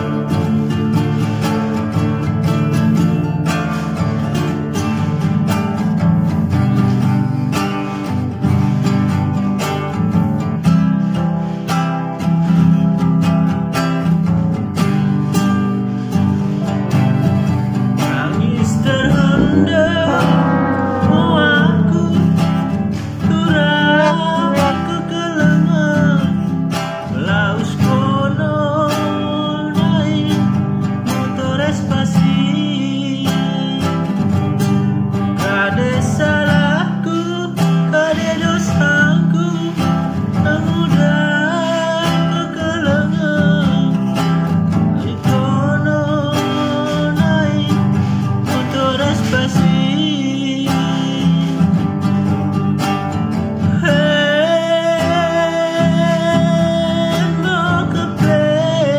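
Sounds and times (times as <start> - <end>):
acoustic guitar strumming chords: 0.0 - 58.9
man singing: 18.0 - 26.4, 27.0 - 34.1, 35.4 - 44.1, 45.0 - 51.8, 53.6 - 58.9.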